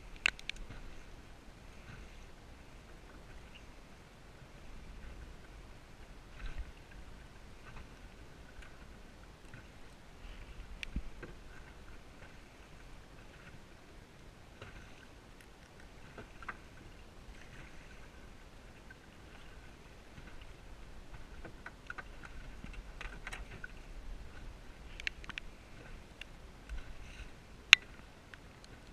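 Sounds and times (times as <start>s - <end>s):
water lapping against boat: 0.0s - 28.9s
fishing gear clicks and taps: 0.1s - 0.7s, 24.9s - 25.5s.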